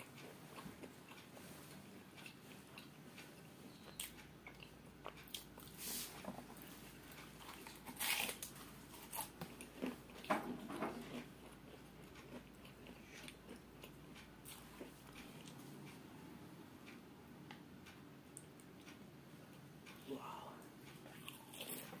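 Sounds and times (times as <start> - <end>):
crunchy pastry chewing: 0.0 - 15.6, 21.0 - 22.0.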